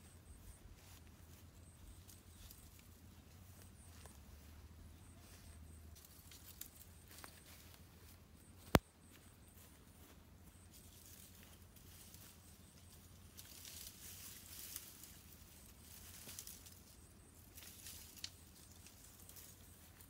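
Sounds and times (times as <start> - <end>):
leafy branches rustling and breaking: 17.5 - 19.5.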